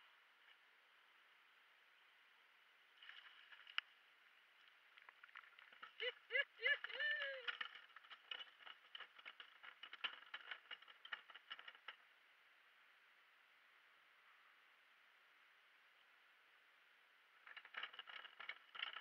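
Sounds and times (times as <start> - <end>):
clicks and knocks of a landing net: 3.0 - 3.9, 4.9 - 12.0, 17.4 - 19.0
person exclaiming: 6.0 - 7.6.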